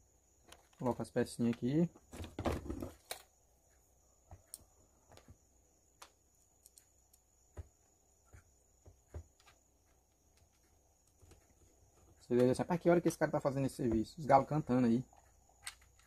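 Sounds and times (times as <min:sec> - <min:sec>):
small plastic parts clicking: 0:06.0 - 0:07.2, 0:15.1 - 0:16.0.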